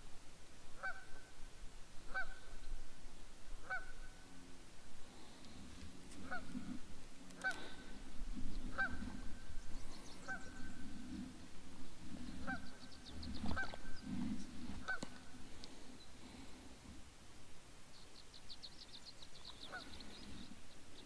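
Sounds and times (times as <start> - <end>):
geese honking: 0.8 - 1.3, 2.0 - 2.6, 3.6 - 4.3, 6.1 - 11.2, 12.0 - 15.4, 19.6 - 20.1.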